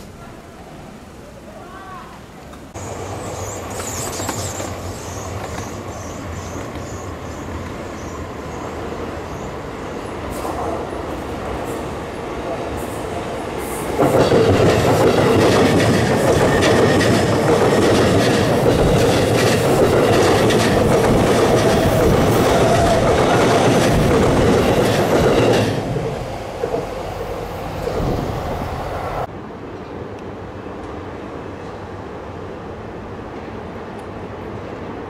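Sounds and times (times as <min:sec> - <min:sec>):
distant train: 0:00.0 - 0:35.0
wheels clacking on rails: 0:02.5 - 0:28.3
electric train passing: 0:02.5 - 0:35.0.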